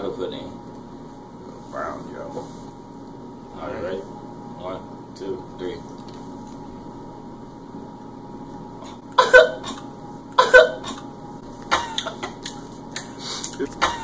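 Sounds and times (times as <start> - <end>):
person coughing: 9.2 - 9.8, 10.4 - 11.0, 11.7 - 12.4, 13.7 - 14.0.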